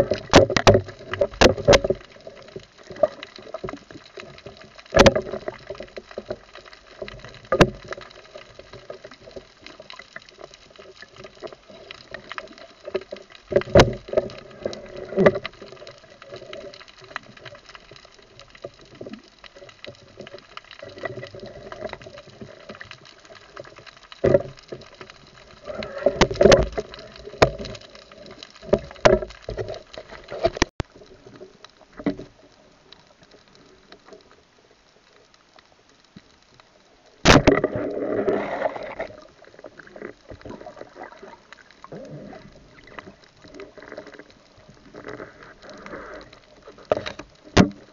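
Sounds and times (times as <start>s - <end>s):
churning water noise: 0.0s - 17.6s, 37.2s - 47.9s
underwater water movement: 0.0s - 47.9s.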